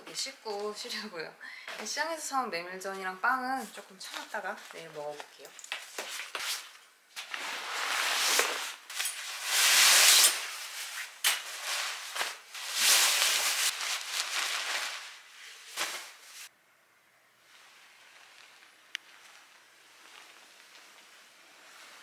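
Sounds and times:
sleeping bag fabric rustling: 7.2s - 16.5s.

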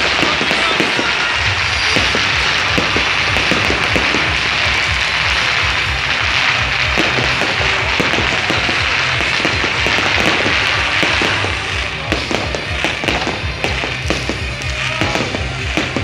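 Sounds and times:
fireworks bursting and crackling: 0.0s - 16.0s
loud music with bass beat: 0.0s - 16.0s.

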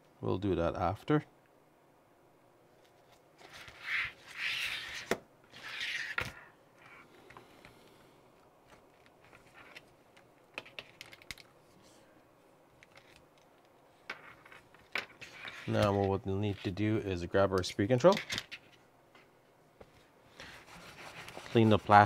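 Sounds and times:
plastic parts rustling and scraping: 8.6s - 11.6s, 12.8s - 16.9s.

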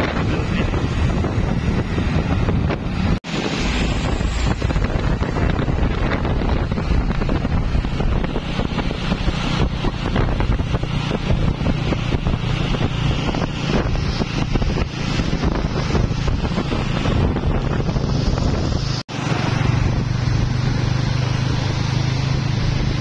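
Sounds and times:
road noise: 0.0s - 23.0s
wind buffeting microphone: 0.0s - 23.0s.

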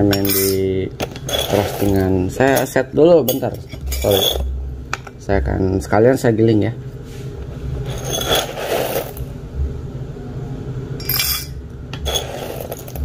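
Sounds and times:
coffee beans rattling into glass: 12.0s - 13.0s.

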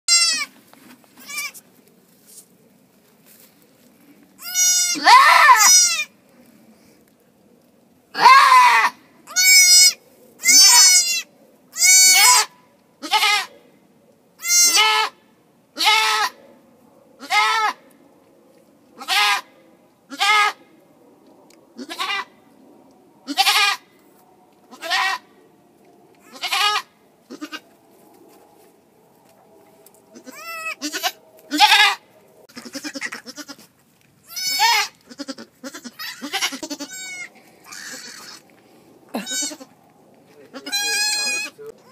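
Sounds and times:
goat bleating: 0.1s - 0.5s, 1.2s - 1.6s, 4.4s - 6.1s, 8.2s - 13.5s, 14.4s - 15.2s, 15.8s - 16.4s, 17.2s - 17.8s, 19.0s - 19.5s, 20.1s - 20.6s, 21.8s - 22.4s, 23.3s - 23.9s, 24.6s - 25.3s, 26.2s - 27.7s, 30.2s - 38.4s, 39.1s - 39.8s, 40.5s - 41.9s.

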